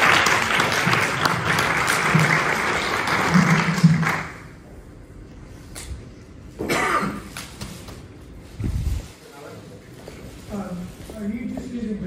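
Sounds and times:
audience applauding: 0.0 - 4.6.

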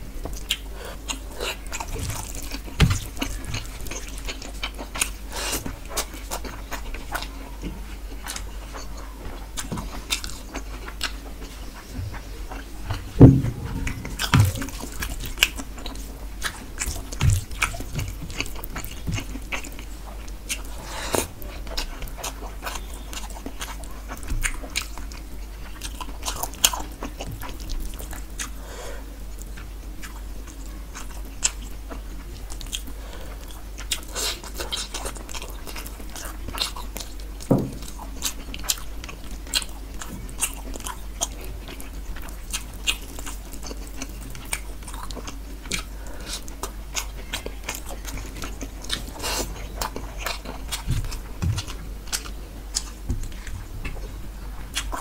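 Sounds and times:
chewing and wet mouth sounds: 0.2 - 28.6, 29.2 - 55.0
dull thumps: 12.8 - 15.0.

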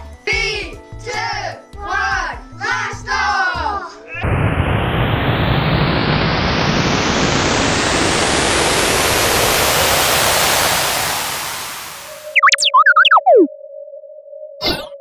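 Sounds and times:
rocket roar: 4.2 - 12.2.

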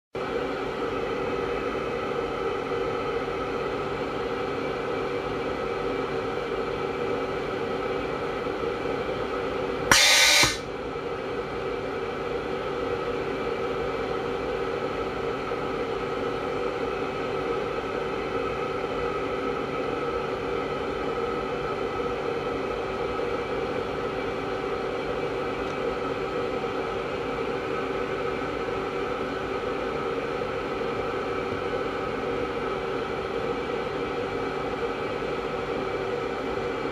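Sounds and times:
compressed air nozzle hissing: 9.9 - 10.6
steady machine hum: 9.9 - 22.1.

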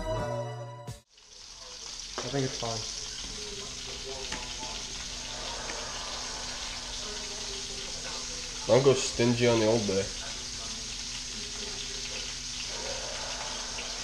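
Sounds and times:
music: 0.0 - 1.7
water hissing at sink: 1.2 - 14.0.

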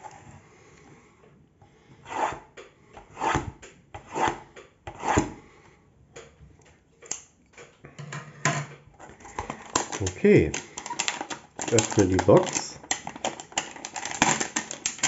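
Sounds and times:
scissors scraping plastic wrap: 9.2 - 15.0
handling of box and wrap: 9.3 - 15.0.

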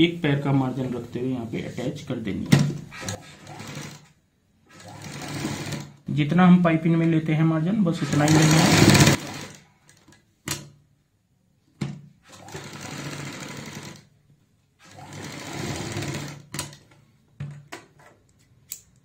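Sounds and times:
sewing machine stitching: 2.9 - 6.0, 7.9 - 10.0, 12.2 - 14.1, 14.8 - 16.9.

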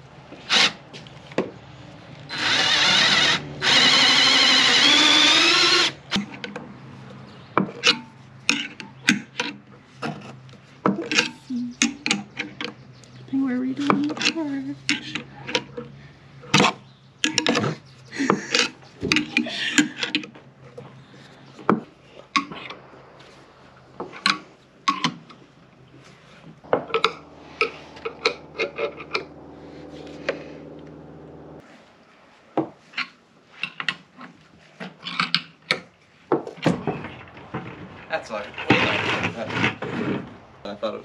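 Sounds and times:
steady hum: 20.8 - 31.6.

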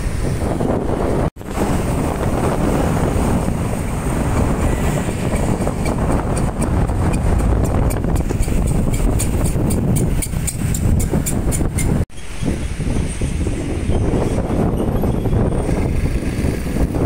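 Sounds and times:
road traffic: 0.0 - 17.0
wind buffeting microphone: 0.0 - 17.0.

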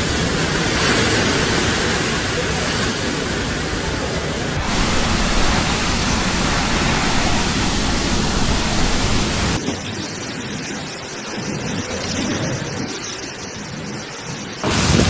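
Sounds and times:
driving rain: 0.0 - 9.6
strong wind: 0.0 - 15.0.

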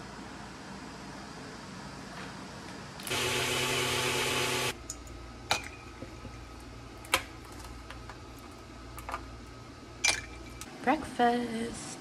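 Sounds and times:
small electric motor whirring: 3.1 - 4.7.

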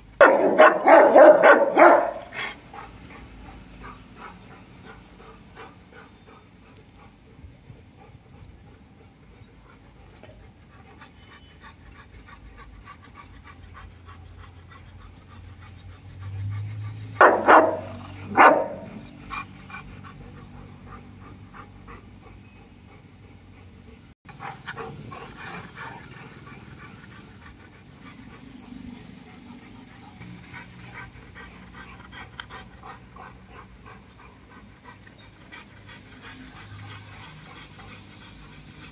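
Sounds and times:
dogs barking loudly: 0.2 - 6.0, 13.2 - 22.3
dogs panting: 0.6 - 38.9.

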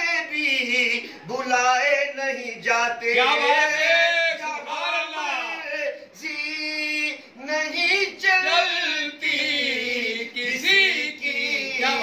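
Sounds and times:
men singing devotional song: 0.0 - 12.0.

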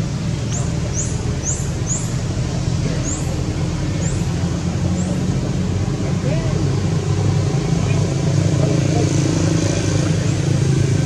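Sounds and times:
motor traffic hum: 0.0 - 11.0
bird chirping: 0.4 - 2.2, 3.0 - 3.4.

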